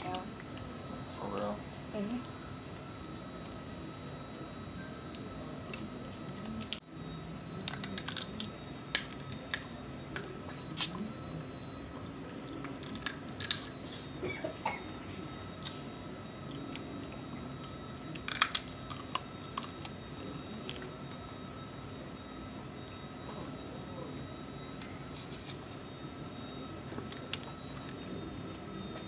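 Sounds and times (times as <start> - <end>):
crab shells cracking: 7.6 - 11.0, 12.7 - 13.8, 18.2 - 20.9
chewing: 16.4 - 21.4, 26.8 - 28.7.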